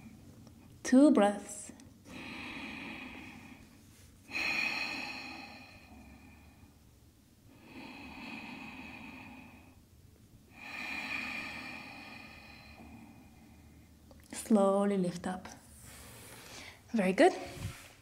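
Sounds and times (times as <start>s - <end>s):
woman breathing deeply: 2.1s - 9.9s, 10.5s - 14.0s, 15.8s - 18.0s.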